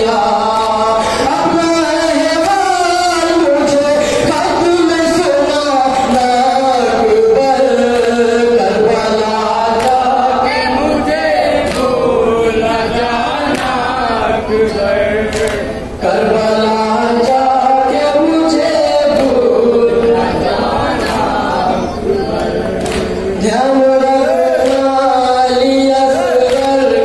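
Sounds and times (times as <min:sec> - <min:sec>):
man chanting into a microphone: 0:00.0 - 0:27.0
sharp slaps: 0:09.8 - 0:10.1, 0:11.6 - 0:12.0, 0:15.3 - 0:15.7, 0:19.1 - 0:19.5, 0:22.8 - 0:23.2, 0:24.6 - 0:25.0.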